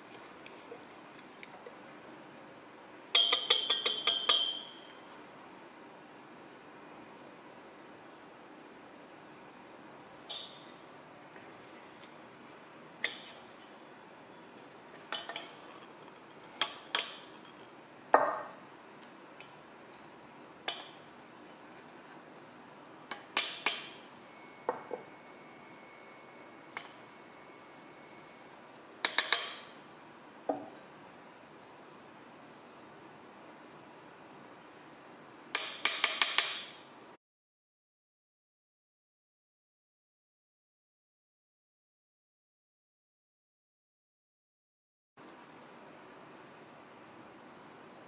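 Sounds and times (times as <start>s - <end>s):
glass bowls and sieve clinking: 3.1s - 5.0s.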